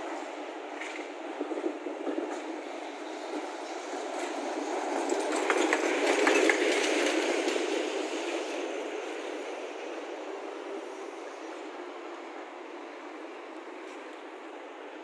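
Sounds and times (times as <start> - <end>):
tram wheels clicking over rails: 0.0 - 14.6.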